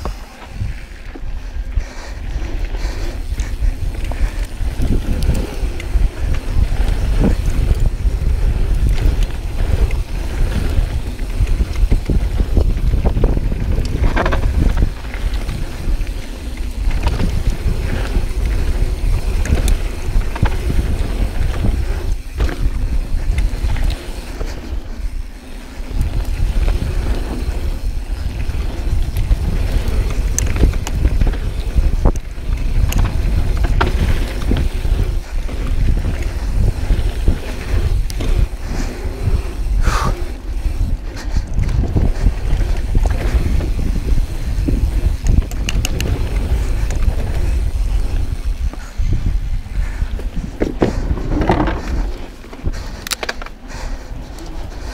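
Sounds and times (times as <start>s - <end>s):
bike clicks knocks and rattles: 0.0s - 54.9s
wind rumble on microphone: 0.0s - 54.9s.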